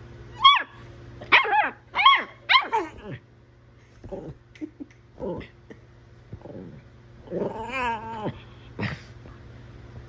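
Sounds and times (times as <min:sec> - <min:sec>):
small dogs yipping: 0:00.3 - 0:03.2.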